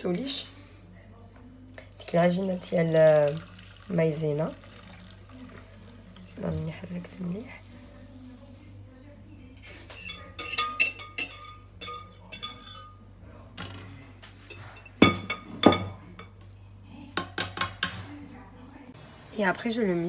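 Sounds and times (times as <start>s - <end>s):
metal whisk clinking on sieve: 9.6s - 13.0s.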